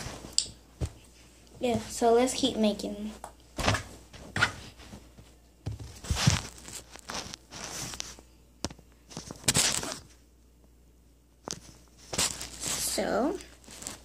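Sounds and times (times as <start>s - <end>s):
cloth rustling: 3.6s - 8.3s, 9.0s - 10.2s, 11.4s - 14.0s.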